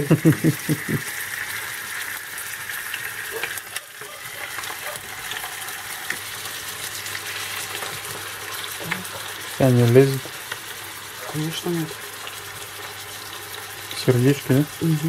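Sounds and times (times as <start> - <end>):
meat sizzling in a frying pan: 0.0 - 15.0.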